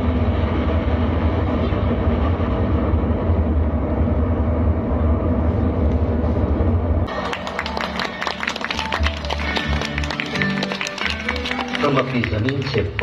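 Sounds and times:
deep rocket rumble: 0:00.0 - 0:07.1
rushing noise: 0:00.0 - 0:08.1.

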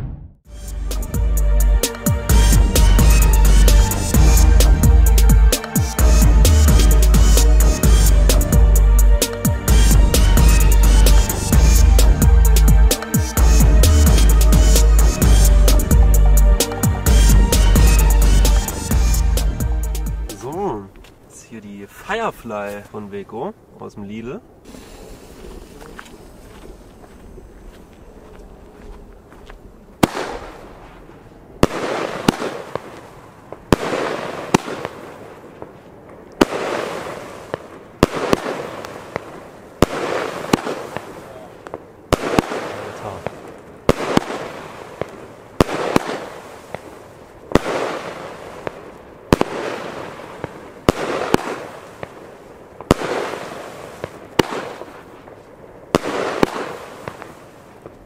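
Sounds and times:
firework stars crackling: 0:01.8 - 0:23.3, 0:24.6 - 0:29.1, 0:30.0 - 0:58.0
firework launch cracks: 0:24.6 - 0:26.6, 0:30.0 - 0:58.0.

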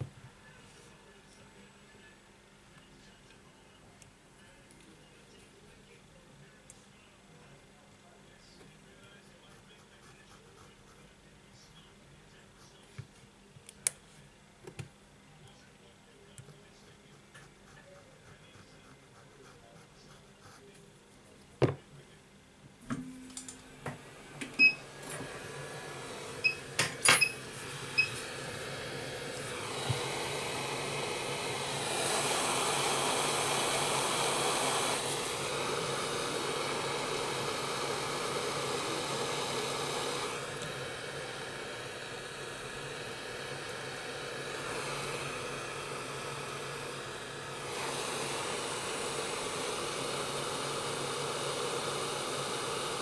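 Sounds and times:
hot-air station blowing: 0:22.8 - 0:53.0.

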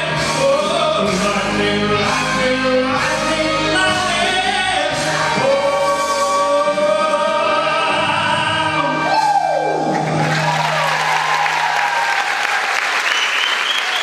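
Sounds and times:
backing track music: 0:00.0 - 0:13.7
audience applause: 0:09.9 - 0:14.0.

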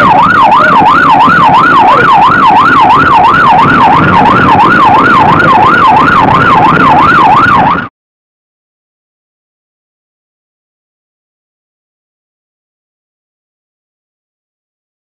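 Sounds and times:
police siren wailing: 0:00.0 - 0:07.9.

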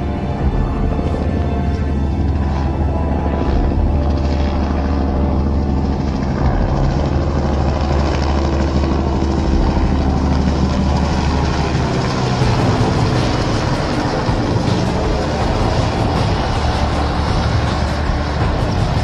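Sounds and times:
helicopter flying past low: 0:00.0 - 0:19.0.

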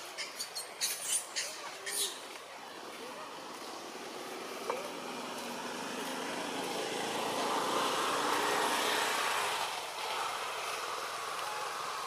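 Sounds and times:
vehicle passing by: 0:02.6 - 0:12.0.

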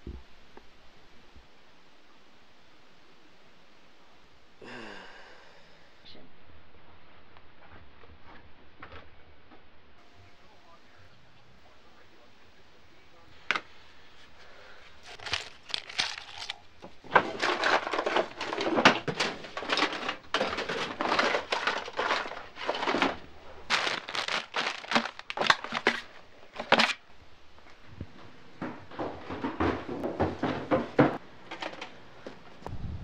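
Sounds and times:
items rustling in a drawer: 0:13.5 - 0:27.1, 0:27.7 - 0:32.6.

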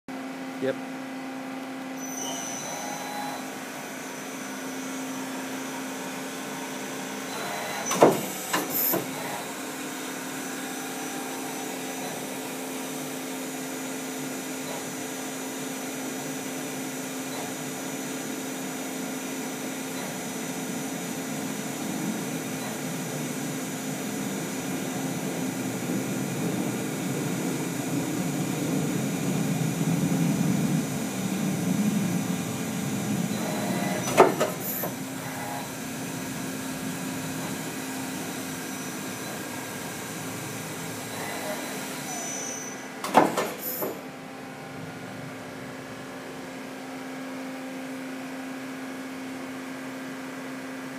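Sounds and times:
lathe machine hum with whining tones: 0:00.1 - 0:50.9
sharp machine clunks: 0:07.7 - 0:09.2, 0:33.4 - 0:35.0, 0:43.0 - 0:44.0.

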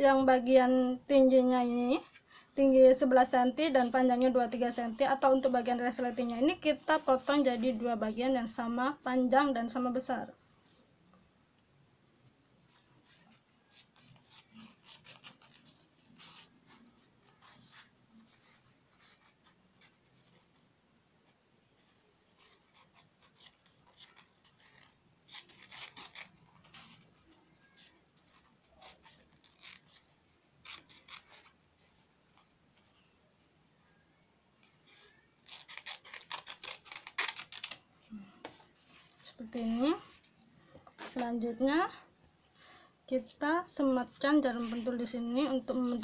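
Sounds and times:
scissors snipping fabric: 0:13.7 - 0:17.9, 0:22.4 - 0:27.0, 0:35.4 - 0:37.8.

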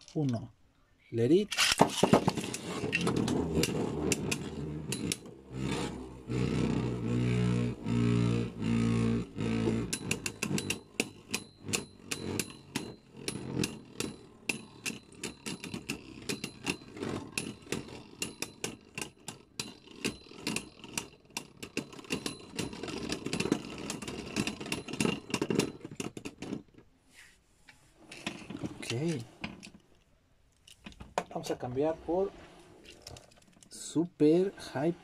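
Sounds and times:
spinning tops clacking together: 0:01.5 - 0:05.2
spinning tops whirring: 0:01.5 - 0:25.9.

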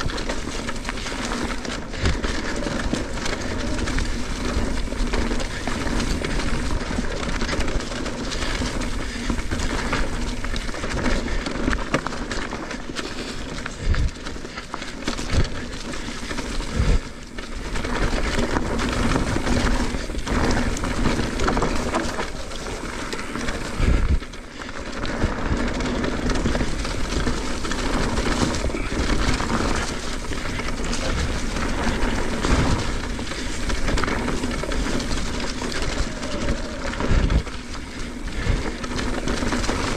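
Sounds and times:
rushing tyre and wind noise: 0:00.0 - 0:39.9.

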